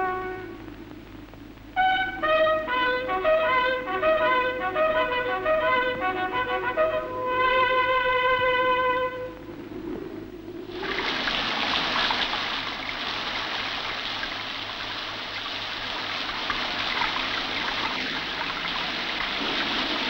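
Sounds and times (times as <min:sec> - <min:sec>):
shower water spraying: 0:10.7 - 0:20.0.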